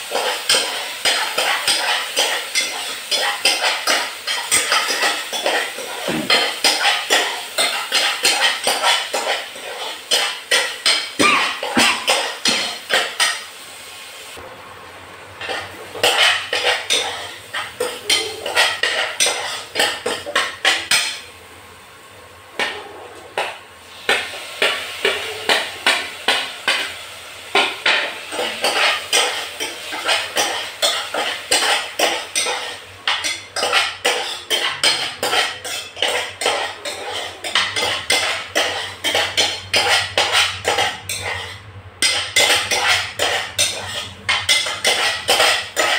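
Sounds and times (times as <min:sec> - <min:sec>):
spoon scraping steel saucepan: 0:28.4 - 0:45.9.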